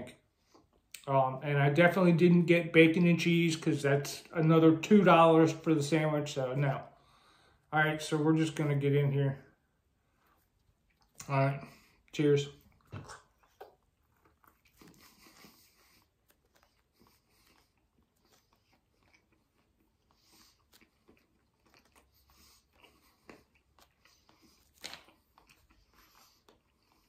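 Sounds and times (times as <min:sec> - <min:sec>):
person chewing food: 0:09.9 - 0:27.0
biting into sandwich: 0:12.7 - 0:27.0.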